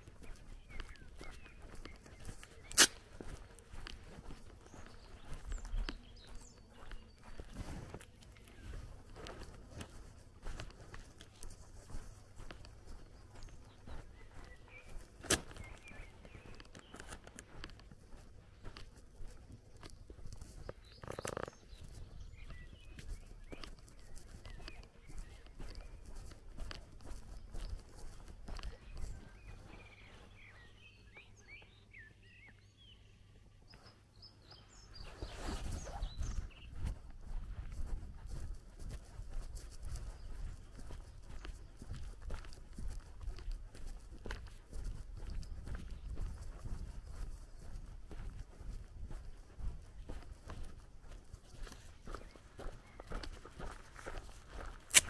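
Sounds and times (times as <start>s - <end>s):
footsteps on grass: 0.0s - 32.8s, 33.4s - 55.0s
faint bird chirps: 0.0s - 49.5s
sharp snap: 2.7s - 3.0s.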